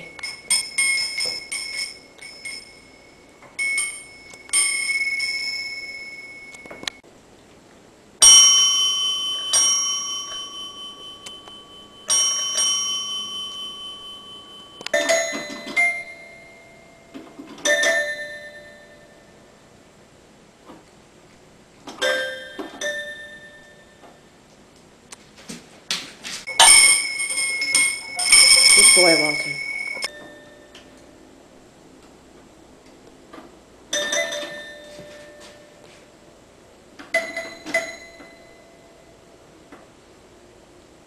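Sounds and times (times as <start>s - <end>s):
small brass bell ringing: 0.0s - 6.8s, 8.2s - 17.0s, 26.5s - 30.8s
tabletop bell strikes: 8.2s - 16.6s, 26.5s - 30.7s
short chimes: 26.5s - 31.0s.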